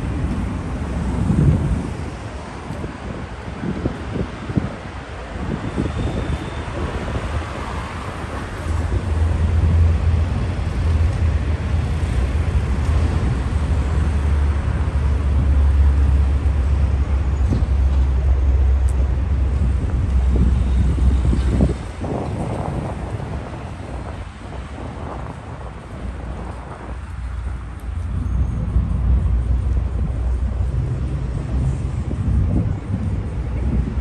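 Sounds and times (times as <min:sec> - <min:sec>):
cars and vans passing: 0:00.0 - 0:34.0
heavy low rumble: 0:08.4 - 0:34.0.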